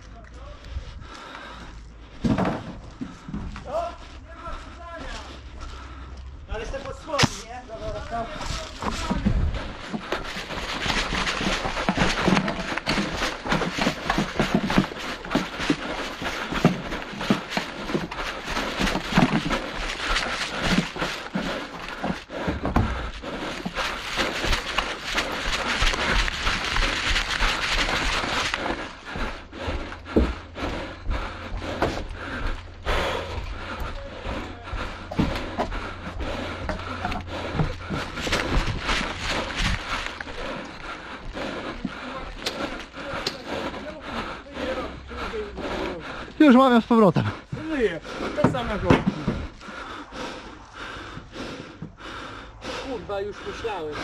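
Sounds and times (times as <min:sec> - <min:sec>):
footsteps on wooden boards: 0:00.0 - 0:54.0
hard panting breath: 0:00.4 - 0:54.0
running footsteps on grass: 0:02.8 - 0:54.0
gear rustling: 0:06.8 - 0:30.3, 0:31.8 - 0:43.0.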